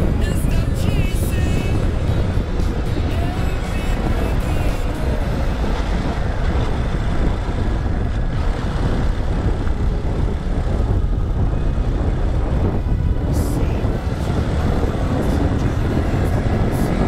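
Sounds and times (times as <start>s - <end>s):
motorcycle engine cruising: 0.0s - 17.0s
wind rushing over microphone: 0.0s - 17.0s.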